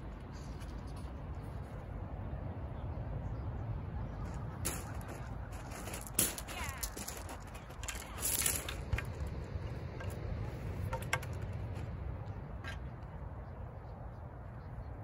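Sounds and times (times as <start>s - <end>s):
steady low rumble: 0.0s - 15.0s
fishing rods clicking and knocking: 6.1s - 12.0s.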